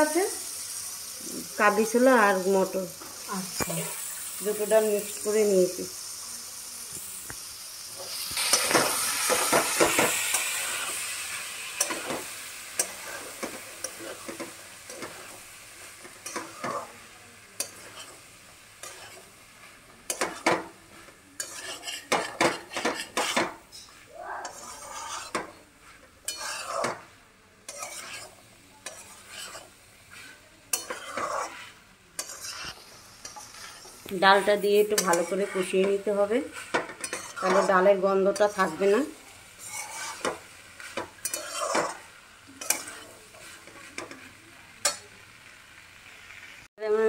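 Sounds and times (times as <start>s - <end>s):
food sizzling in oil: 0.0s - 47.0s
spatula scraping a pan: 8.0s - 45.1s.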